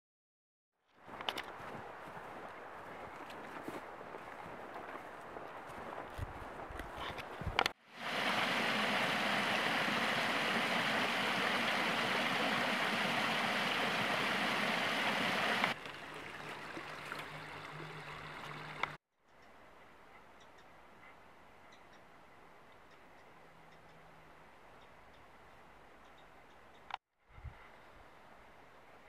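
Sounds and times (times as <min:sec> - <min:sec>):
creek trickling over riffles: 0:07.9 - 0:19.0
waterfall rushing: 0:08.0 - 0:19.0.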